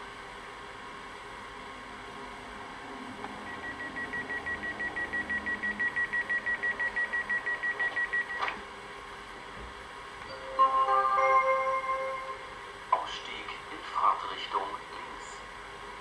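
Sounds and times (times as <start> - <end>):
rapid high beeps: 3.5 - 8.4.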